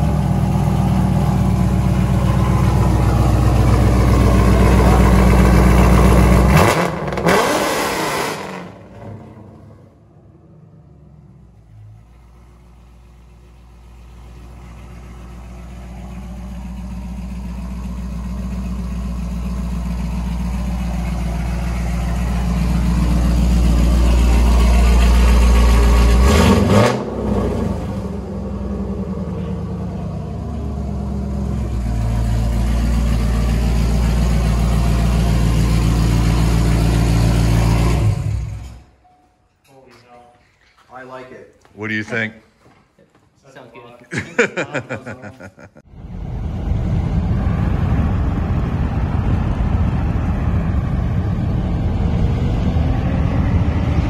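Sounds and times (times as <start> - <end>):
car engine idling: 0.0 - 7.4, 8.5 - 39.0
engine revving: 0.0 - 9.9, 19.0 - 38.9, 45.9 - 54.0.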